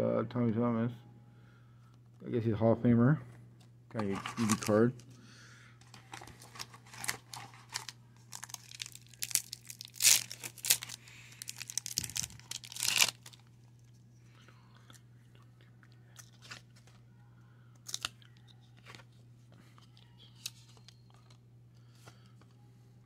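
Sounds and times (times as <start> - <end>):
steady low hum: 0.0 - 23.0
cards being handled: 4.0 - 5.1, 5.8 - 13.4
foil wrapper crackling and tearing: 4.2 - 4.8, 5.9 - 13.5.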